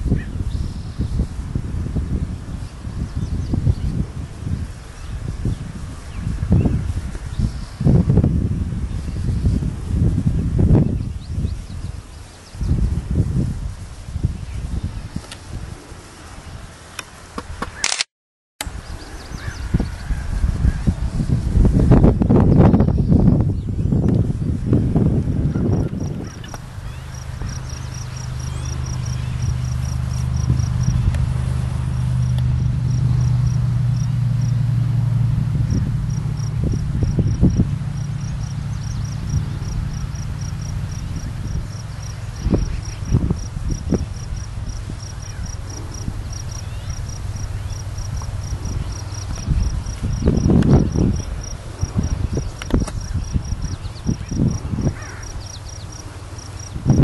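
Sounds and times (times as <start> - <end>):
steady low hum: 18.7 - 57.0
low thumps and rumbles: 19.4 - 55.3
insect chirping: 25.7 - 31.1, 32.0 - 34.6, 35.6 - 57.0.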